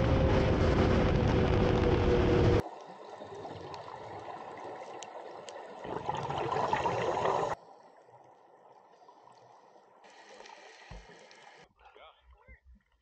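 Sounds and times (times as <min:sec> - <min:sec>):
regulator bubbles gurgling underwater: 0:02.6 - 0:11.6
faint underwater hiss: 0:02.6 - 0:12.0.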